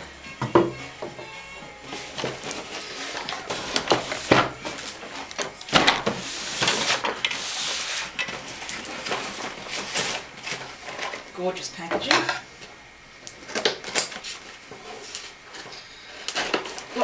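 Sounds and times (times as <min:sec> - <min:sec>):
packaging crinkling and rustling: 0:01.9 - 0:11.4, 0:13.4 - 0:17.0.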